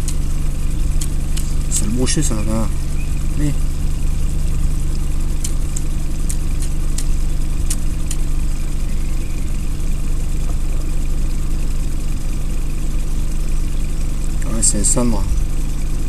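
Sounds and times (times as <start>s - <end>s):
sharp light clicks: 0.0s - 1.7s, 5.3s - 8.4s
boat motor humming: 0.0s - 16.0s.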